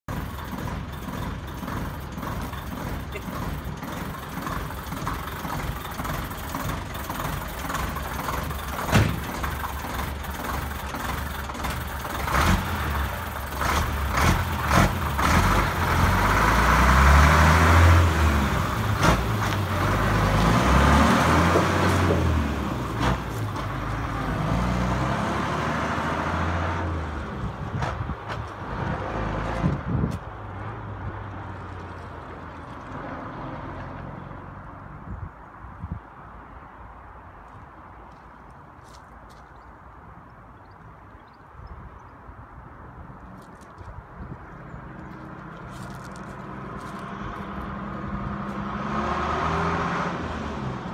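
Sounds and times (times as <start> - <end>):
lorry diesel engine running: 0.1 - 29.9.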